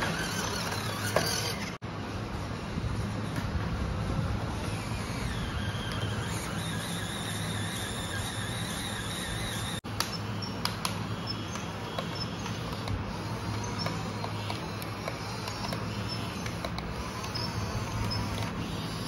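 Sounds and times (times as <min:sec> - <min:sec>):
toy electric motors whirring: 0:00.0 - 0:01.8, 0:04.1 - 0:19.0.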